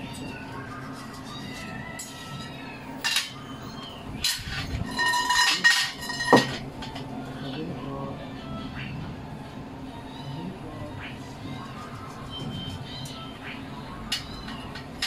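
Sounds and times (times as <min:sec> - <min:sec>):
hard objects clattering and clinking: 0:00.9 - 0:07.2, 0:14.1 - 0:15.0.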